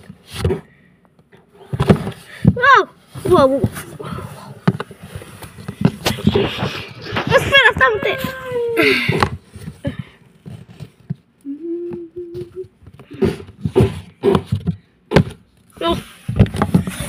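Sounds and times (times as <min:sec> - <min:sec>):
hummed tone: 0:11.4 - 0:12.8
plastic toys knocking and clicking: 0:12.4 - 0:17.0.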